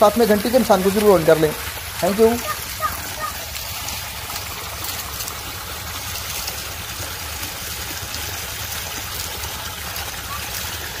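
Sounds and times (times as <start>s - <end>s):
water gushing into a tank: 0.0s - 11.0s.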